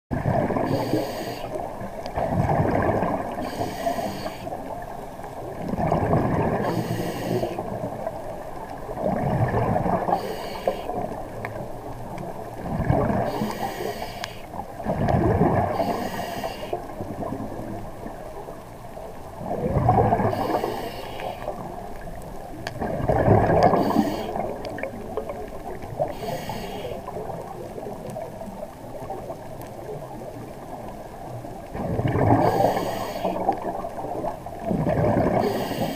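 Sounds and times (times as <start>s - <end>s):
exhaled bubbles gurgling: 0.1s - 35.9s
diver breathing through regulator: 0.6s - 1.6s, 3.4s - 4.6s, 6.5s - 7.7s, 10.0s - 11.1s, 13.2s - 14.6s, 15.7s - 16.9s, 20.1s - 21.6s, 23.6s - 24.6s, 26.0s - 27.2s, 32.3s - 33.5s, 35.3s - 35.9s.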